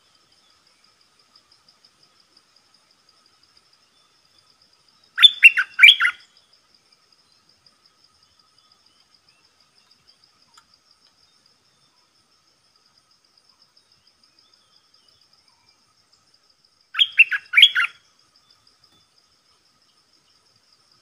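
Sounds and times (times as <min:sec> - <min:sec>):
faint insect trill: 0:00.0 - 0:21.0
bird singing: 0:03.7 - 0:10.6, 0:13.5 - 0:16.3, 0:16.9 - 0:20.5.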